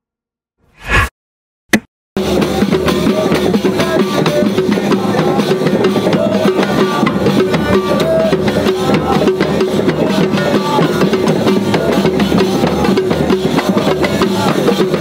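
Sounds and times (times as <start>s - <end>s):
frame drums in fast rhythm: 2.2s - 15.0s
men singing: 2.2s - 15.0s.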